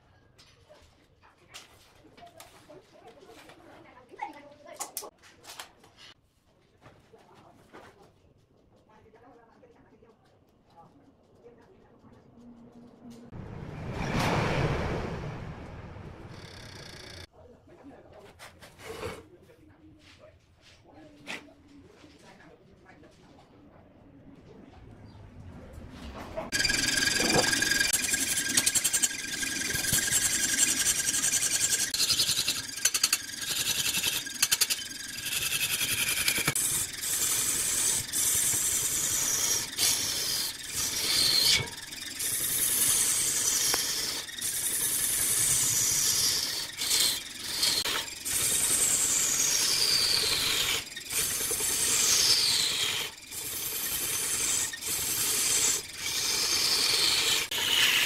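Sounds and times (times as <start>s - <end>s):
lathe tool scraping wood: 26.5s - 58.0s.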